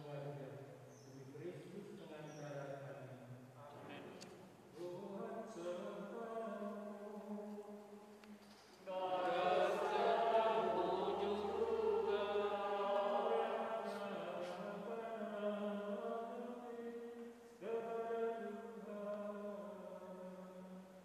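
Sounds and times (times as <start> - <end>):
voices singing a chant: 4.8 - 21.0.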